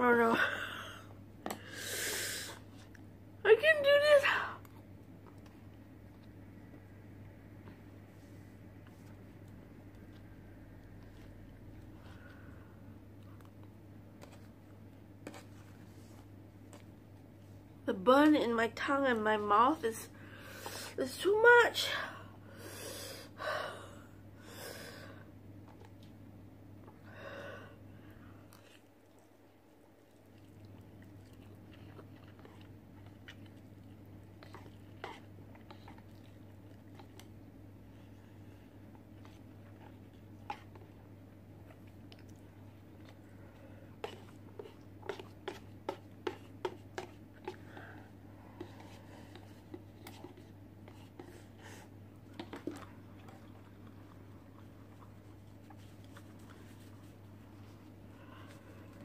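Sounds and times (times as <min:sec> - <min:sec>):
low steady hum: 0:00.0 - 0:59.0
chewing and slurping noodles: 0:28.5 - 0:59.0.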